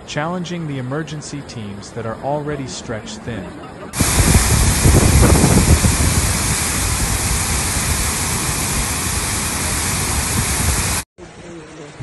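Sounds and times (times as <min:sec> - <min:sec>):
floodwater rushing: 0:04.0 - 0:11.0.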